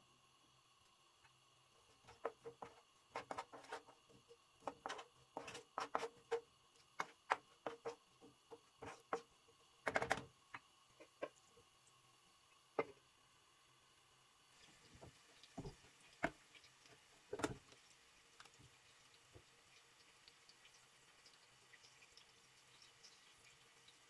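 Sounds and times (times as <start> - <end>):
spatula scraping a frying pan: 2.0 - 6.4, 8.8 - 9.2.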